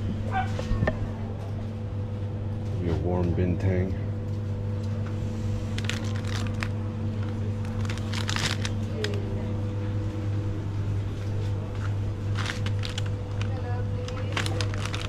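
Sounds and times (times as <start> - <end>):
steady low hum: 0.0 - 15.0
plastic packaging crinkling: 5.6 - 9.4, 12.1 - 15.0.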